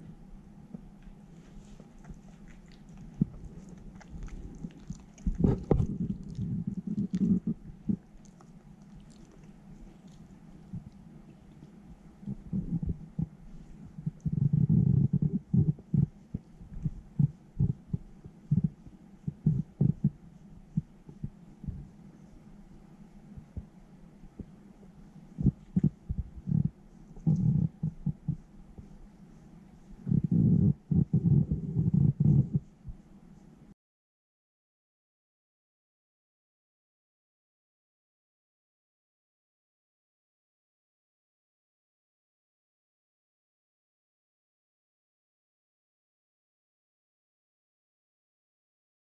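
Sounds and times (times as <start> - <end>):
steady low hum: 0.0 - 33.8
crackly rustling: 0.8 - 14.2
cat licking soft thumps: 1.3 - 7.3
cat licking fur: 1.3 - 17.8.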